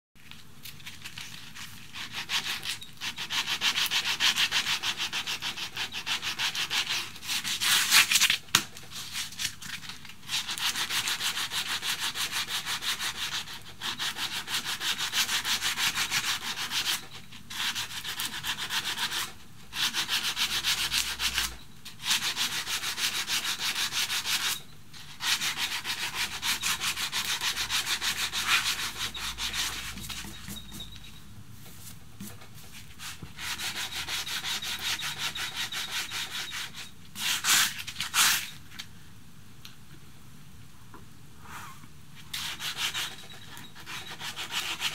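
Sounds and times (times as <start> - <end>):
sandpaper rasping on wood: 25.2 - 30.0, 43.8 - 44.9.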